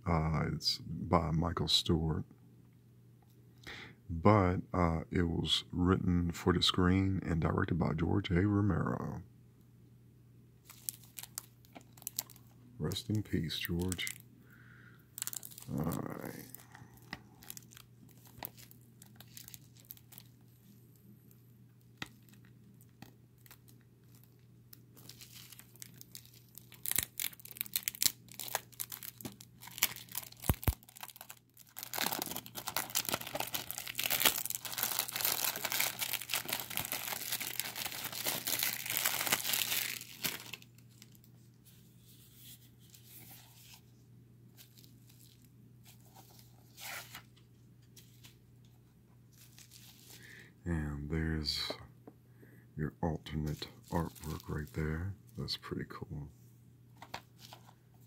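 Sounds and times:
plastic shrink wrap crackling: 10.6 - 14.2, 15.2 - 41.3, 53.5 - 54.8.

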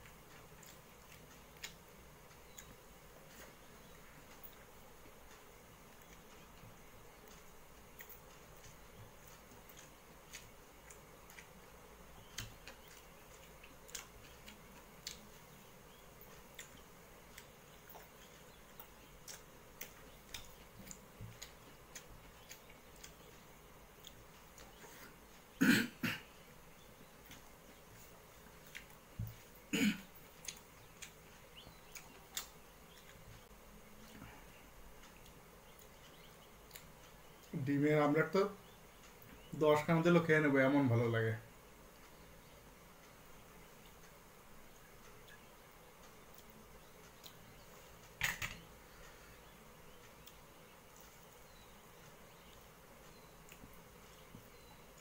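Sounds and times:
chewing and lip smacks: 0.0 - 11.6, 12.2 - 25.4, 30.3 - 34.2, 35.0 - 37.6, 52.3 - 55.0
man clearing his throat: 25.6 - 26.3, 29.7 - 30.1.

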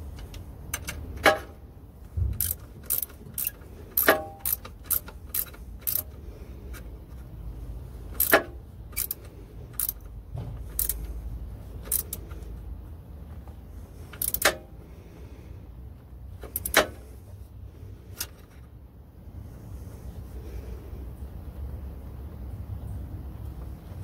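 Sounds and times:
low steady rumble: 0.0 - 24.0
wrench clinking on metal: 2.4 - 6.2, 8.1 - 10.1, 11.8 - 12.3, 14.2 - 14.6.

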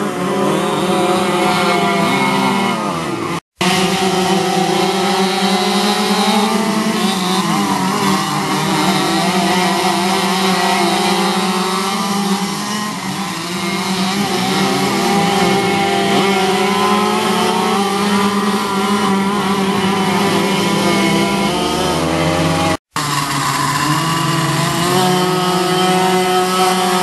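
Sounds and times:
go-kart engines buzzing: 0.0 - 27.0.

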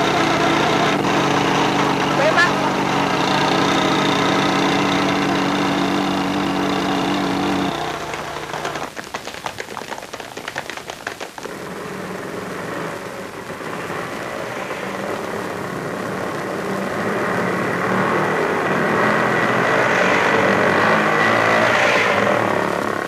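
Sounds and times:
motorcycle engine running: 0.0 - 9.9
small vehicle engine running: 0.0 - 23.0
sharp clicks and clatter: 7.6 - 11.9.

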